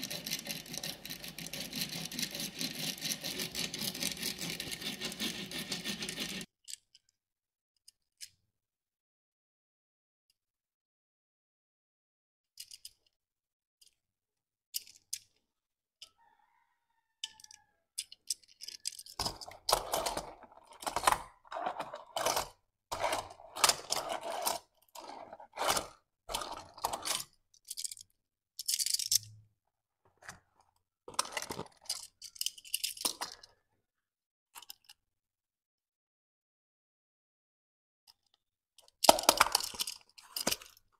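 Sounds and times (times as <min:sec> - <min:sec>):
toy car and cardboard handling: 0:00.0 - 0:07.2, 0:12.6 - 0:13.2, 0:17.2 - 0:29.3, 0:30.0 - 0:33.6, 0:38.1 - 0:40.9.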